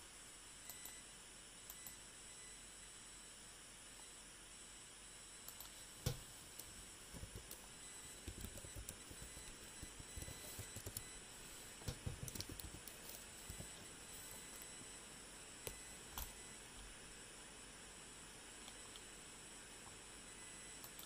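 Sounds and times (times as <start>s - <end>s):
radio static hiss: 5.6s - 20.7s.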